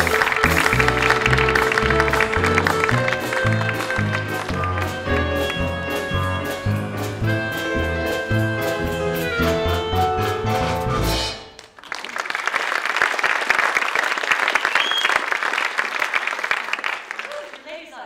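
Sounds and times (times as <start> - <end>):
audience applauding: 0.0 - 6.4, 11.5 - 17.9
song accompaniment: 0.0 - 11.6.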